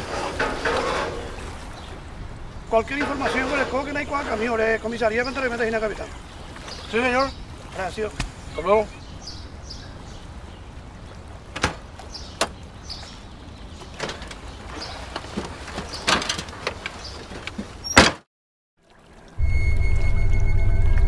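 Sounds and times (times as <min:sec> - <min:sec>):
low droning music note: 0:19.4 - 0:21.0.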